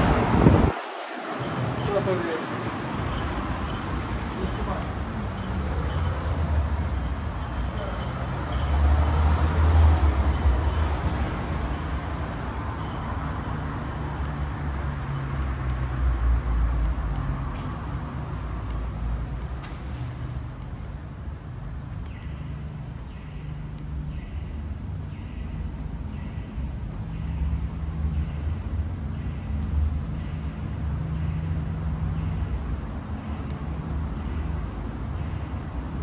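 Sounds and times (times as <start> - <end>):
vehicle passing: 0.0 - 21.8
low traffic noise: 0.0 - 36.0.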